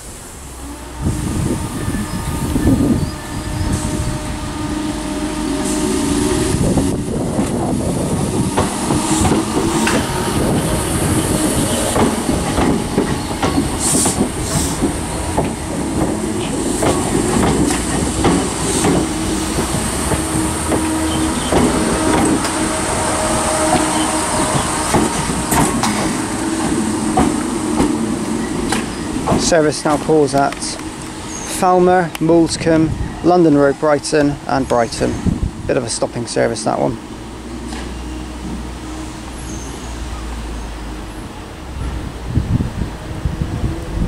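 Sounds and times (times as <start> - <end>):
electric train motors humming: 0.0 - 44.0
wheels clattering over rail joints: 7.0 - 22.8, 23.6 - 39.9.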